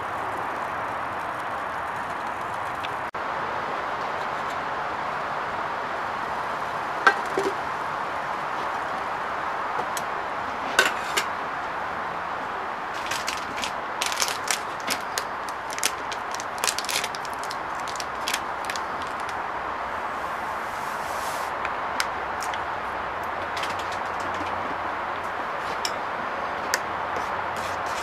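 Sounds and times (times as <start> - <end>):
steady hiss: 0.0 - 28.0
paper sachet crackling: 13.0 - 19.4.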